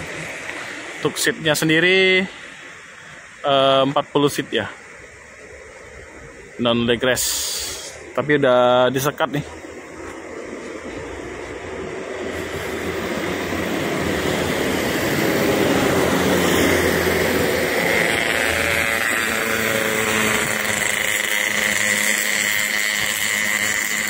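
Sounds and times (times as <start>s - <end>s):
motor running: 9.6s - 24.0s.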